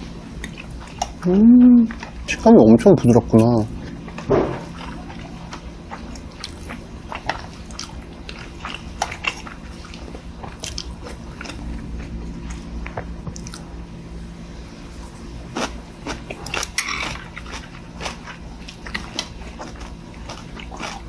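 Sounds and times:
person biting and chewing food: 0.0 - 2.4, 3.3 - 13.8, 15.0 - 21.0
steady low hum: 0.0 - 21.0.

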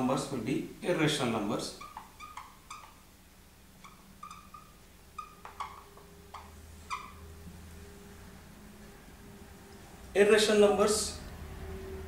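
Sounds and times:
low steady hum: 0.0 - 12.0
marker squeaking on whiteboard: 1.6 - 7.3.

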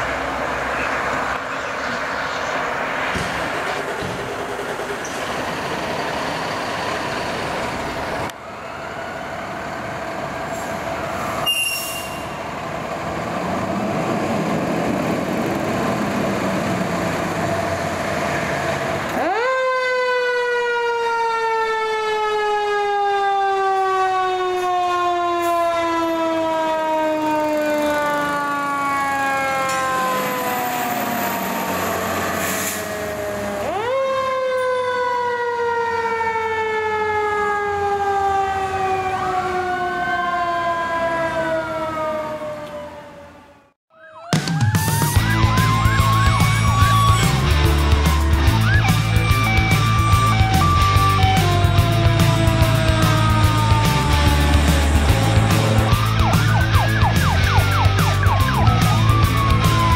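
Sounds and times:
engine and traffic noise: 0.0 - 43.8, 44.9 - 59.9
mechanical fire engine siren: 18.3 - 59.9.

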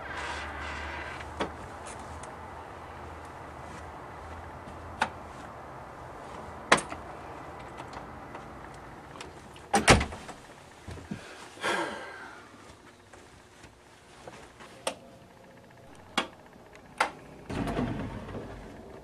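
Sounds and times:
low outdoor hum: 0.0 - 19.0
door shutting with thud: 9.7 - 10.2, 17.5 - 18.6.

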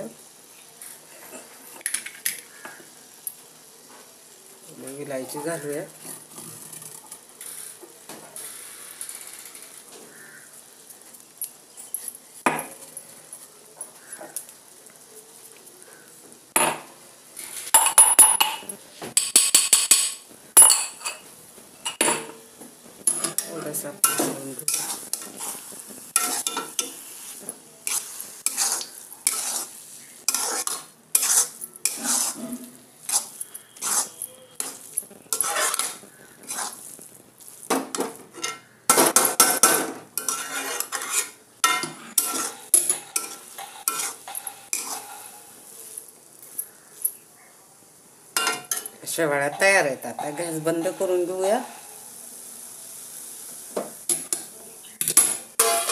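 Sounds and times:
metal spatula scraping a pan: 23.0 - 46.8, 48.4 - 52.1, 54.0 - 55.9.

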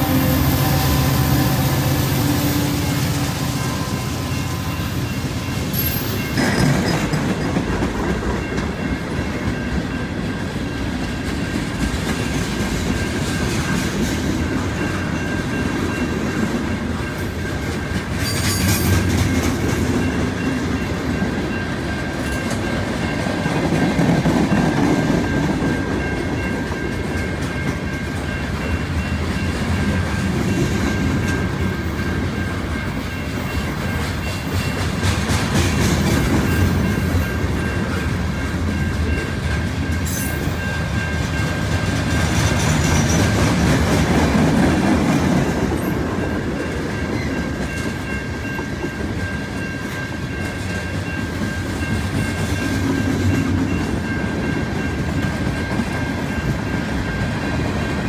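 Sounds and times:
faint high ring: 0.0 - 6.4
freight train wheels clacking: 0.0 - 58.0.

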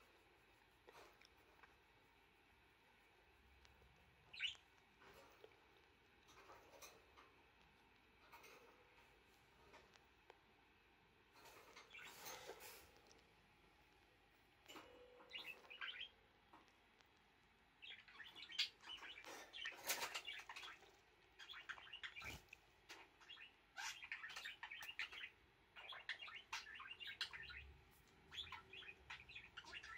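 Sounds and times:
budgerigar chirping and chattering: 4.3 - 4.6, 17.8 - 22.4, 23.2 - 27.7, 28.3 - 29.9.

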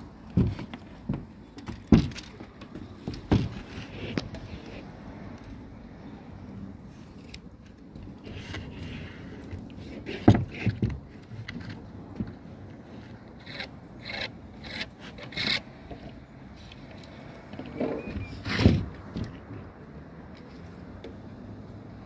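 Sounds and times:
scraping on plywood: 8.1 - 11.9.

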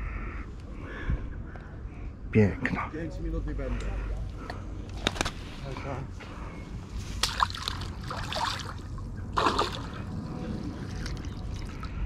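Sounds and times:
net splashing in water: 9.4 - 10.0.

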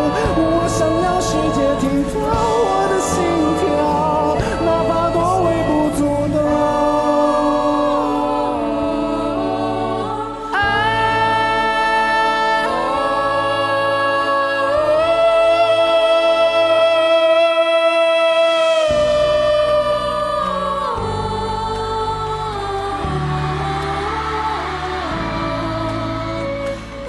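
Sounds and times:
man singing long ah notes: 0.0 - 9.3
low sustained accompaniment: 0.0 - 27.0.

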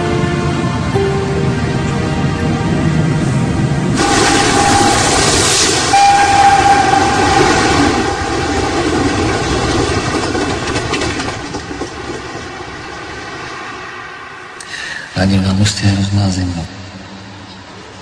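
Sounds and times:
train rushing past: 0.0 - 18.0
train horn blasts: 4.0 - 9.4.

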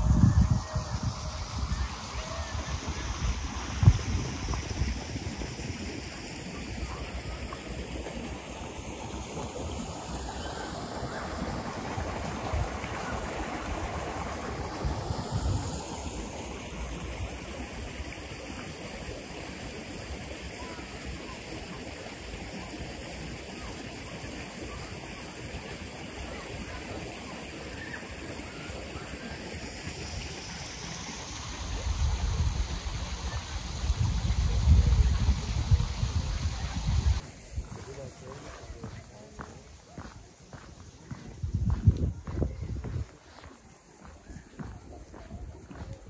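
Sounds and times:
river water rushing over rocks: 1.3 - 33.8.

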